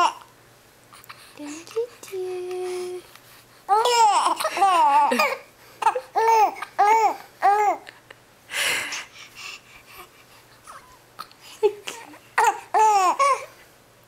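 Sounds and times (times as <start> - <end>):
infant cooing and babbling: 3.7 - 7.9, 11.9 - 13.5.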